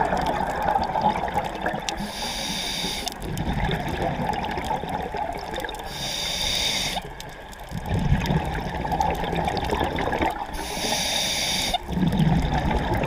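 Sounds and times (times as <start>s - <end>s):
regulator hissing inhalation: 2.0s - 3.1s, 5.9s - 7.1s, 10.6s - 11.9s
bubbling exhalation: 7.7s - 10.6s, 11.8s - 13.0s.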